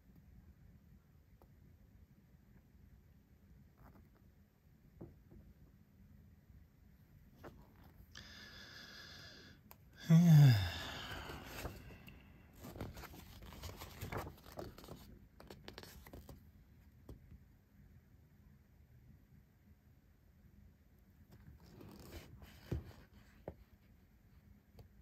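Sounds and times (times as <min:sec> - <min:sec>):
paper rustling: 0:11.3 - 0:12.0, 0:12.6 - 0:16.4.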